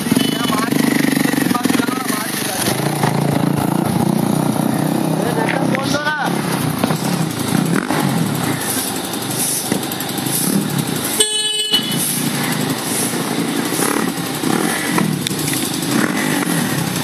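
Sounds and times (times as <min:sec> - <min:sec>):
motorcycle engine running: 0:00.0 - 0:17.0
traffic noise: 0:00.0 - 0:17.0
horn toot: 0:11.1 - 0:12.2.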